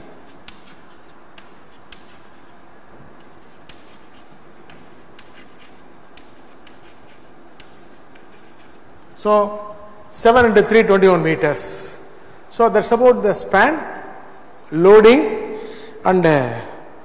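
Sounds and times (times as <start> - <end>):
chalk tapping and scratching: 0.0 - 8.8
steady background hiss: 0.0 - 17.0.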